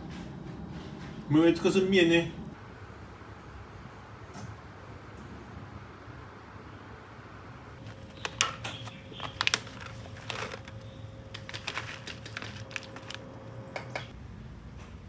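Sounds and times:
coffee packet crinkling: 7.8 - 13.3.

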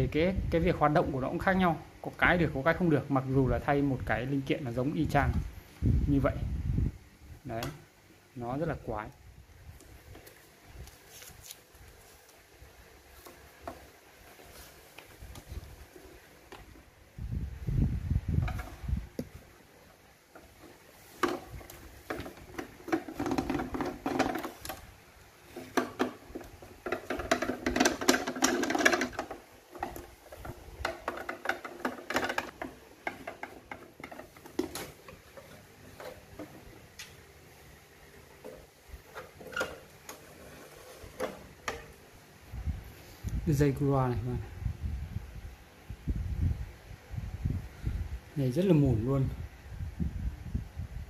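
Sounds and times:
plastic cabinet clicks and knocks: 21.2 - 24.8, 25.6 - 36.6.

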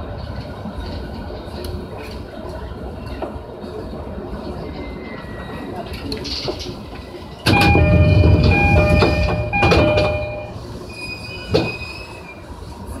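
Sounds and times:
train rumble: 0.0 - 13.0
train wheels squealing: 4.4 - 6.0, 7.3 - 12.6.

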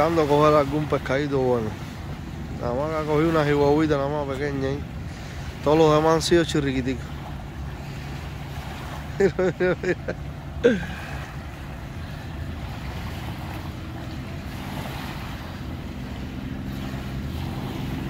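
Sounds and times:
boat engines droning: 0.0 - 18.0
small waves lapping on sand: 0.0 - 18.0.

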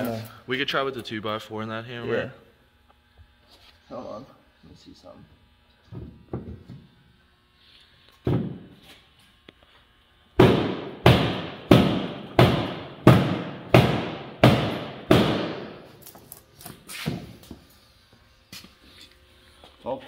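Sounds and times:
hammer striking metal panel: 10.4 - 15.8.

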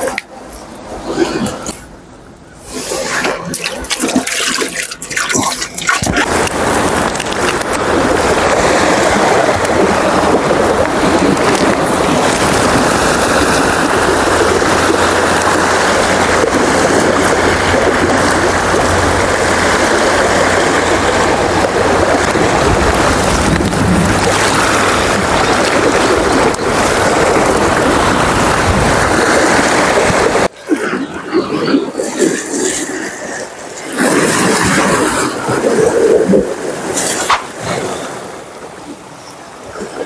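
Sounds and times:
wind rumbling on microphone: 0.0 - 40.0
sea water washing against rocks: 2.6 - 40.0.

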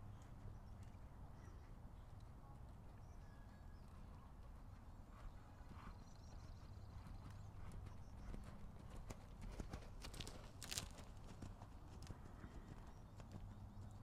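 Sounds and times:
horse hoofbeats on sand: 5.1 - 14.0.

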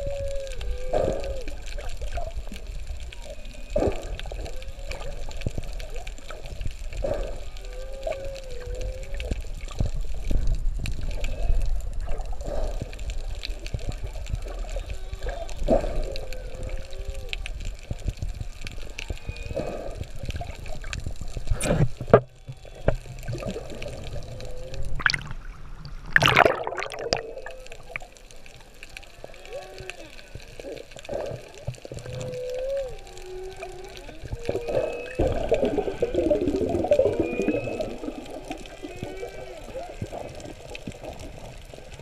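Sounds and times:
faint moaning tones: 0.0 - 25.0, 26.2 - 42.0
underwater clicks: 0.0 - 42.0
underwater water rush: 0.0 - 42.0
loud underwater bursts: 23.2 - 28.1, 34.3 - 40.5.

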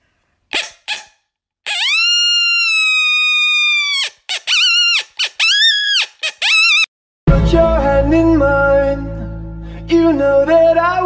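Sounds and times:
coyote yips: 1.7 - 6.9.

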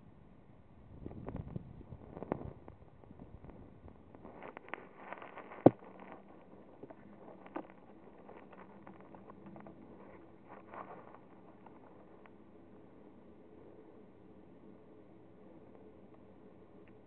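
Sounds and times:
handling rustle: 2.1 - 13.2.

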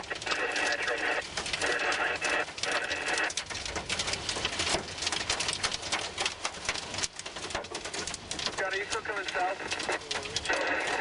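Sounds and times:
heavy rain on car roof: 0.0 - 11.0.

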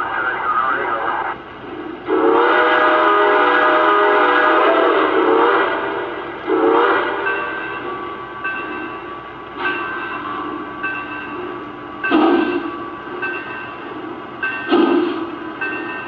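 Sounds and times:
model train steam whistle: 2.1 - 7.4.

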